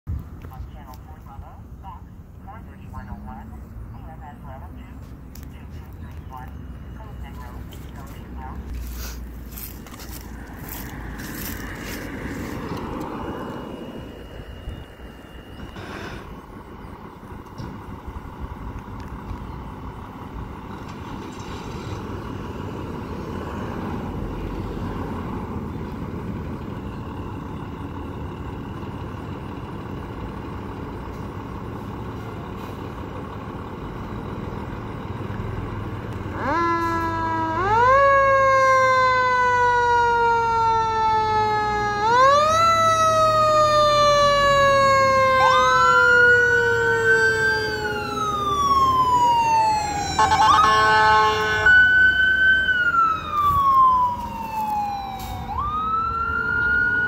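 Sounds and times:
diesel engine rumbling: 0.0 - 57.0
fire truck siren wailing: 0.3 - 57.0
siren sweeping up and down: 9.5 - 16.8, 36.2 - 57.0.

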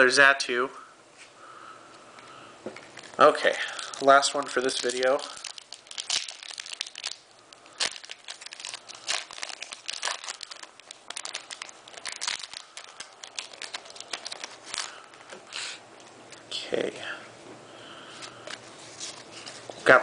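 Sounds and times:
foil wrapper crinkling: 2.8 - 15.5.

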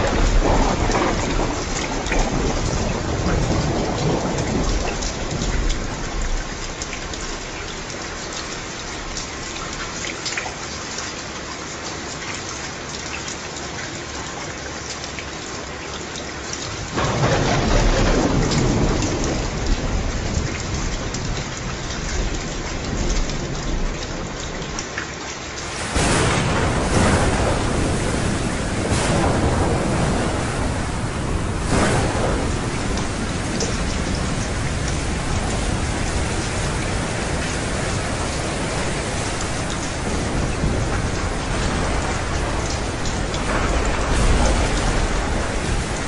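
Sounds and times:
thunder rumbling: 0.0 - 7.5, 16.8 - 24.8, 25.6 - 46.0
heavy rain: 0.0 - 46.0.

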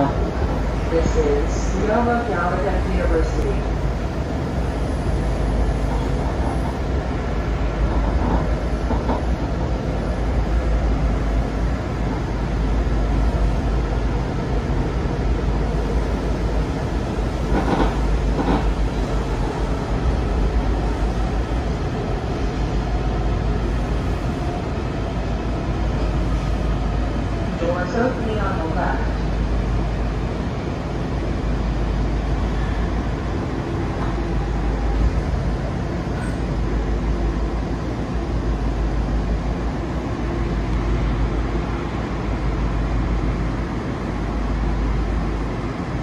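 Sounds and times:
train rumbling along track: 0.0 - 46.0.

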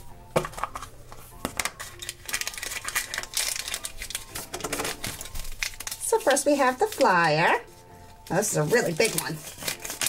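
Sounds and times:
packaging crinkling: 1.5 - 7.4, 8.6 - 10.0.

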